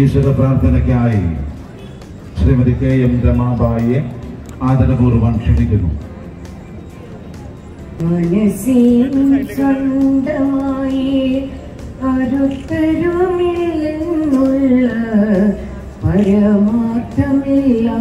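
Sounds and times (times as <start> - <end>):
woman singing into microphone: 8.0 - 18.0.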